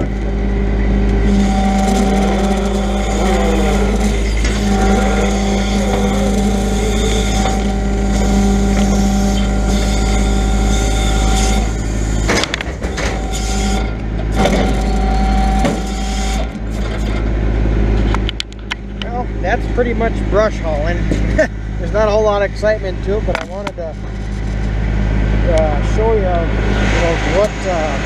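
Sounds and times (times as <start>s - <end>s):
truck engine and hydraulic loader humming: 0.0s - 28.0s
loader knocks: 1.6s - 17.4s.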